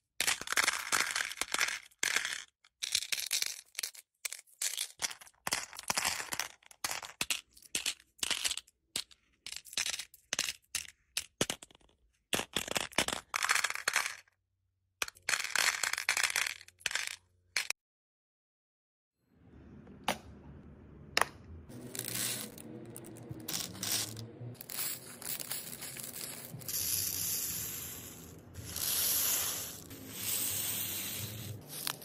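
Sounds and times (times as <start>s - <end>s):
glass beads clinking in plastic box: 21.8s - 32.0s.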